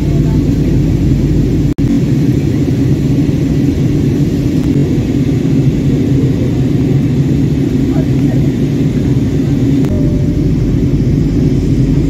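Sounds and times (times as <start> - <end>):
airliner engines rumbling: 0.0 - 12.0
rushing air: 9.8 - 12.0.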